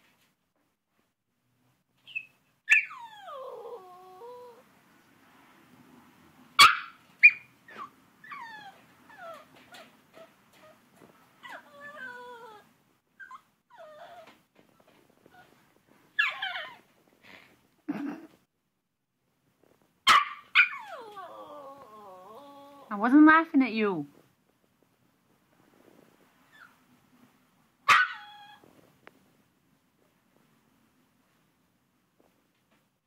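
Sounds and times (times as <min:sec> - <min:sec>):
puppy yelping: 0:02.0 - 0:04.6, 0:06.6 - 0:10.8, 0:11.4 - 0:14.4, 0:16.2 - 0:16.9, 0:20.1 - 0:22.9, 0:27.9 - 0:28.6
puppy whimpering: 0:02.1 - 0:04.6, 0:07.2 - 0:15.6, 0:16.2 - 0:17.5, 0:20.6 - 0:22.9, 0:28.0 - 0:28.6.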